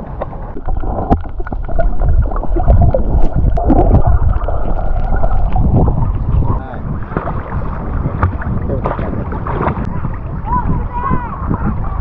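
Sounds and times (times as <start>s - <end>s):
water sloshing and splashing: 0.0s - 12.0s.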